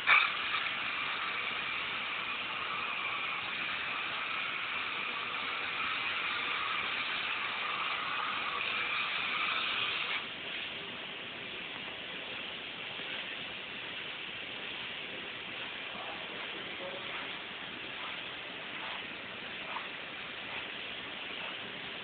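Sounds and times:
spray-foam gun hissing: 0:00.0 - 0:10.8
faint steady hiss: 0:00.0 - 0:22.0.

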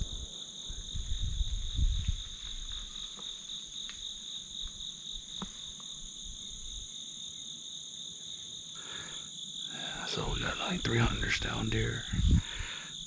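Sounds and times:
crickets trilling: 0:00.0 - 0:13.0
low rumbling bumps: 0:11.4 - 0:12.6.

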